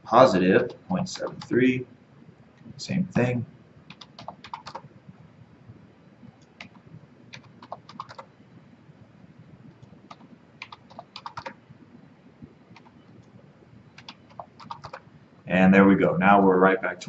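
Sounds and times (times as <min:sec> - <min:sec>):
keyboard keys clicking: 0:00.6 - 0:01.5, 0:03.9 - 0:04.9, 0:06.4 - 0:08.3, 0:09.8 - 0:11.6, 0:12.7 - 0:13.3, 0:14.0 - 0:15.0.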